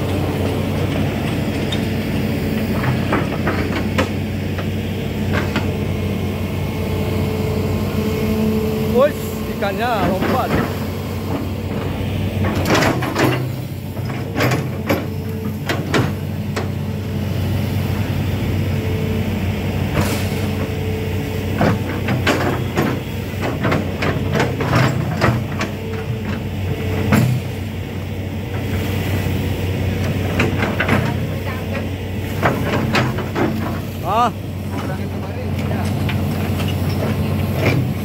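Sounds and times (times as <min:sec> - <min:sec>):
diesel engine running: 0:00.0 - 0:38.0
excavator bucket knocks and clanks: 0:02.7 - 0:05.8, 0:10.0 - 0:16.8, 0:21.5 - 0:27.6, 0:30.0 - 0:34.0, 0:34.7 - 0:38.0.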